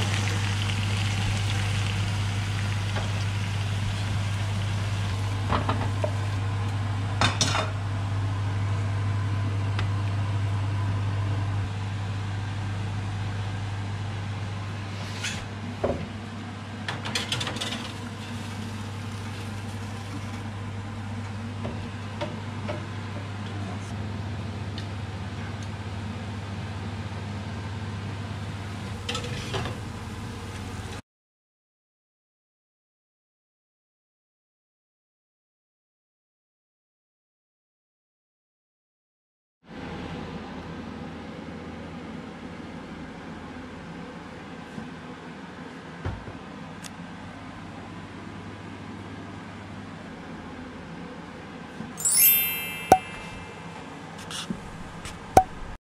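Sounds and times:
low kitchen hum: 0:00.0 - 0:31.0.

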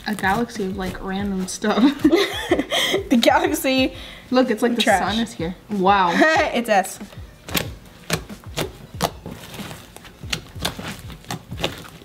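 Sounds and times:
slime kneaded by hand: 0:07.4 - 0:12.0.

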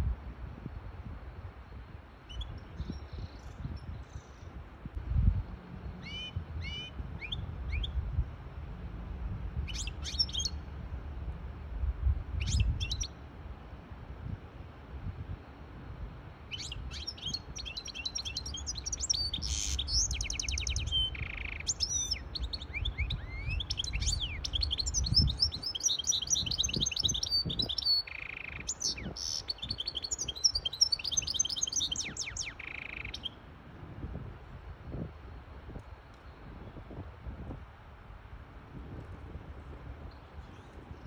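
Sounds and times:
finch twittering song: 0:01.7 - 0:04.5, 0:05.8 - 0:08.0, 0:09.6 - 0:10.6, 0:12.4 - 0:13.2, 0:16.5 - 0:33.4.

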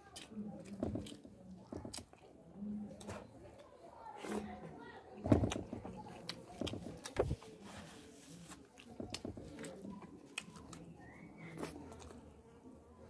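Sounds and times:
wet chewing and lip smacks: 0:08.7 - 0:12.4.

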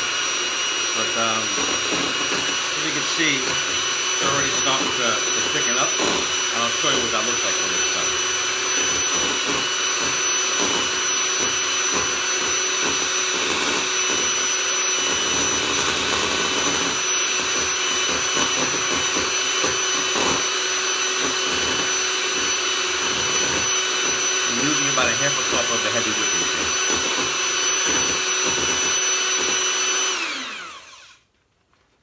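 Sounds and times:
electric hand mixer whipping cream: 0:00.0 - 0:31.2.

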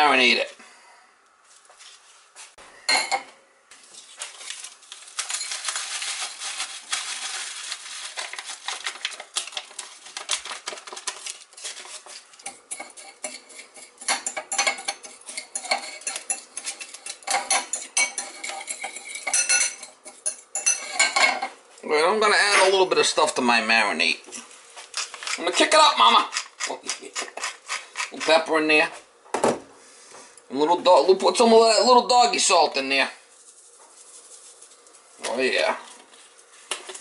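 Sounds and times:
paper packet tearing open: 0:04.0 - 0:12.3
seasoning pouring into ceramic bowl: 0:33.2 - 0:35.5.

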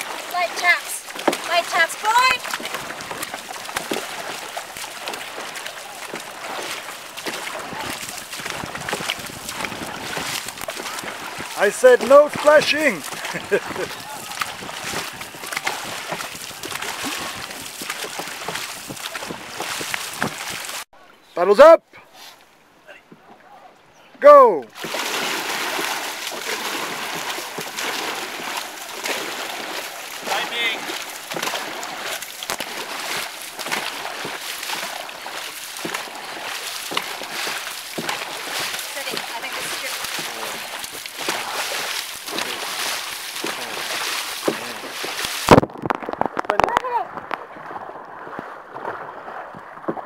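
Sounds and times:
paddles splashing water: 0:00.0 - 0:50.0
wind buffeting microphone: 0:07.5 - 0:20.8.

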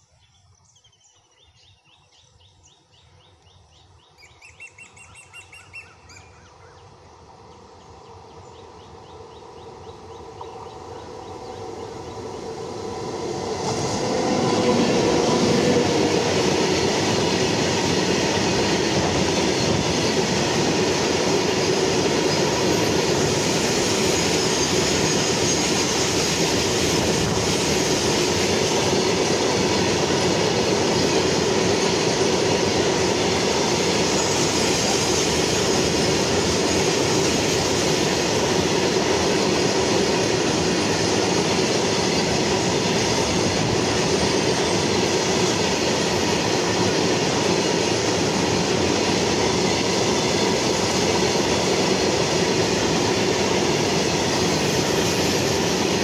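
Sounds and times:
freight train wheels rumbling: 0:04.3 - 0:56.0.

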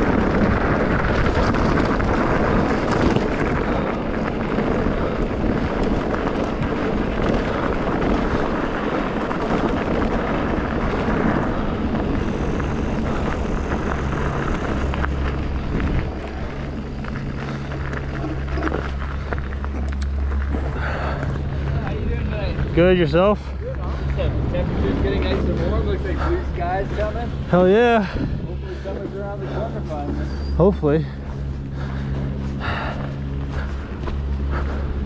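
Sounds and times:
wind on microphone: 0:00.0 - 0:22.8
low engine-like hum: 0:00.0 - 0:35.0
tyres rumbling over rough ground: 0:00.0 - 0:35.0.

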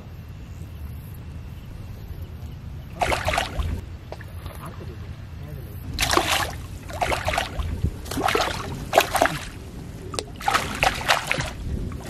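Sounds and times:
fish splashing in water: 0:03.0 - 0:04.8, 0:05.9 - 0:12.0.

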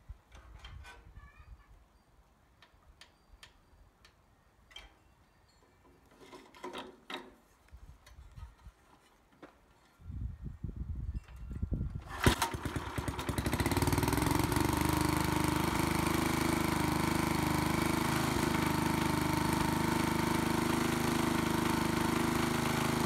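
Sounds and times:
small engine turning over: 0:12.0 - 0:23.0.

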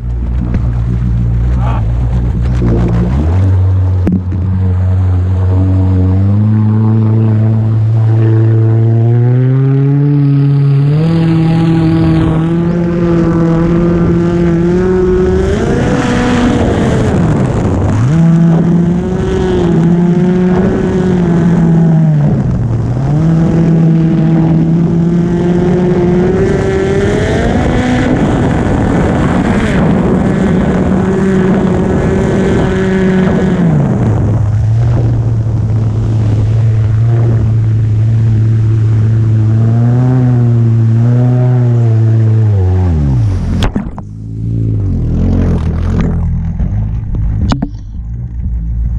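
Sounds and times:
jet ski engine at high revs: 0:00.0 - 0:48.9
wind rushing: 0:10.4 - 0:39.5.

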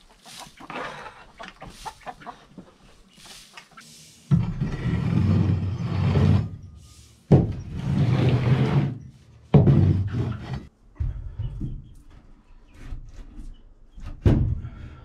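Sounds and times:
rake scraping wooden floor: 0:00.1 - 0:10.7.

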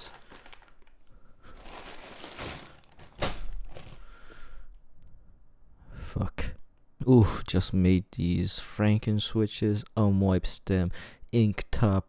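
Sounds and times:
plastic bag crinkling: 0:00.0 - 0:04.2.

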